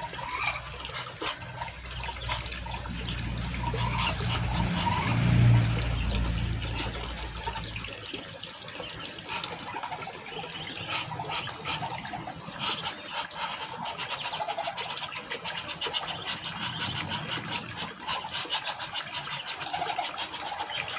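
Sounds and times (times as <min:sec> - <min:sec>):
water running: 0:00.0 - 0:20.9
ducklings peeping: 0:00.2 - 0:07.8
low rumble: 0:02.2 - 0:07.8.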